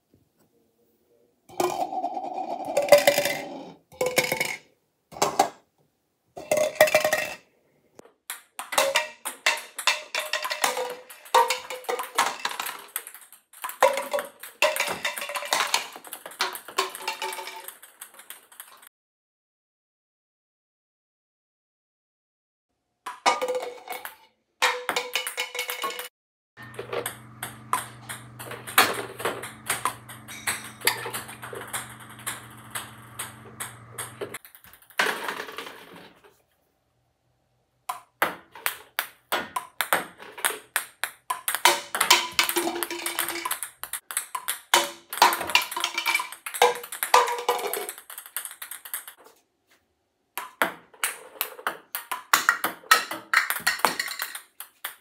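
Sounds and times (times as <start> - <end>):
ping pong balls clicking: 1.5 - 5.6, 8.3 - 18.8, 26.6 - 35.2, 37.9 - 49.2, 50.4 - 55.0
low hum: 26.6 - 34.4.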